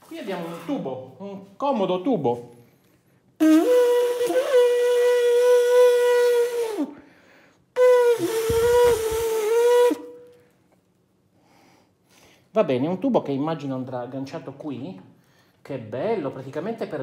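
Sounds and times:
horn-like notes through a hose: 0:03.4 - 0:07.0, 0:07.8 - 0:10.3.

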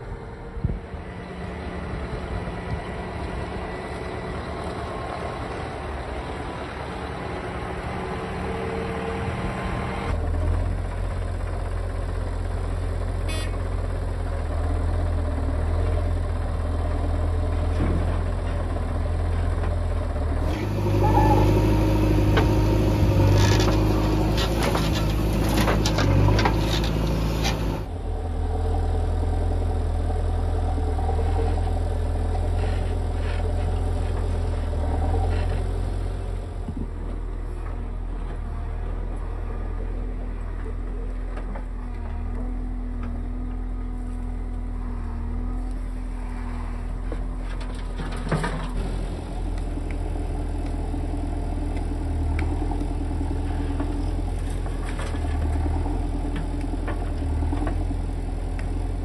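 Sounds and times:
diesel engine under load: 0:00.0 - 0:59.0
falling soil: 0:20.5 - 0:27.9.

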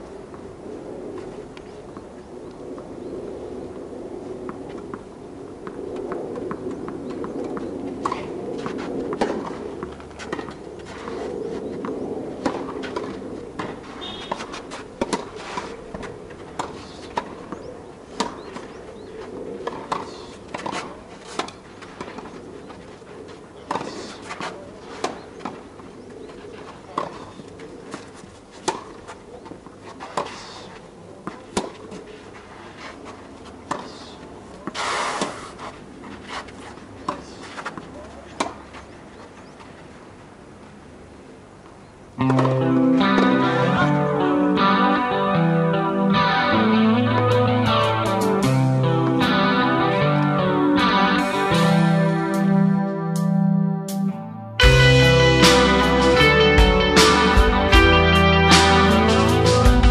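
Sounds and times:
scuffing rush of noise: 0:02.8 - 0:25.8, 0:26.4 - 0:40.4
tennis ball bouncing on court: 0:06.4 - 0:11.2, 0:12.4 - 0:18.8, 0:19.6 - 0:22.4, 0:23.7 - 0:25.6, 0:31.2 - 0:32.0, 0:33.6 - 0:34.0, 0:37.0 - 0:38.7, 0:42.2 - 0:43.4
tennis ball struck by rackets: 0:06.4 - 0:11.2, 0:12.4 - 0:18.8, 0:19.6 - 0:22.4, 0:23.7 - 0:25.6, 0:26.9 - 0:30.6, 0:31.2 - 0:32.1, 0:33.6 - 0:35.6, 0:37.0 - 0:38.7, 0:42.2 - 0:43.6.

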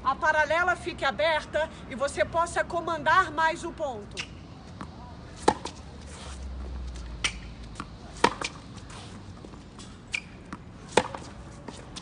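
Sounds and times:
tennis balls struck by rackets: 0:04.1 - 0:12.0
balls bouncing on hard court: 0:07.2 - 0:08.7, 0:09.4 - 0:12.0.

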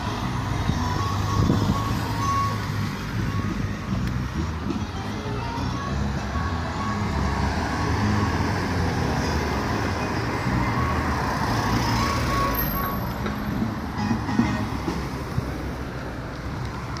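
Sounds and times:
faint band music: 0:00.0 - 0:08.6, 0:11.9 - 0:15.4
wind buffeting on microphone: 0:00.6 - 0:02.0.

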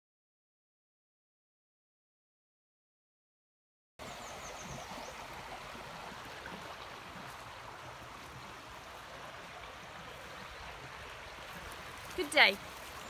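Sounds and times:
stream water rushing: 0:04.0 - 0:13.0.

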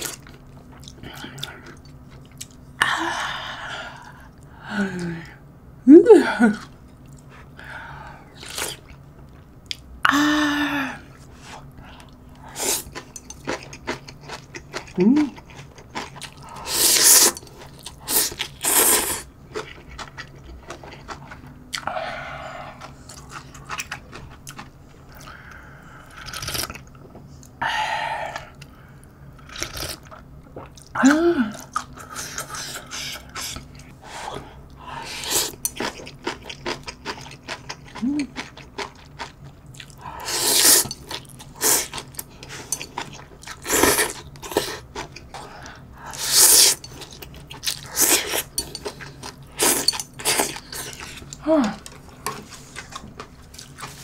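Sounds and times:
person humming mm: 0:04.6 - 0:06.6, 0:31.0 - 0:31.7, 0:38.0 - 0:38.4, 0:51.4 - 0:51.9.

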